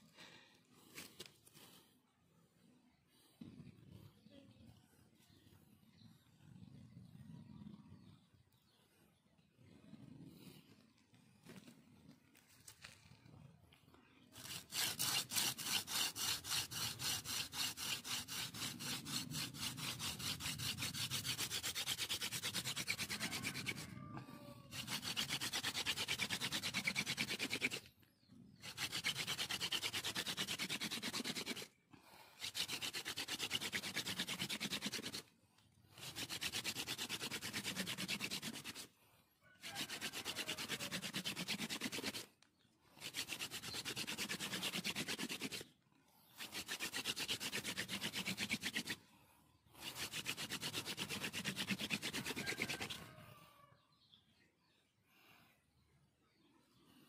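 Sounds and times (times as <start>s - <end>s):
wooden spindle rubbing in a hearth: 14.0s - 49.0s, 49.6s - 53.4s.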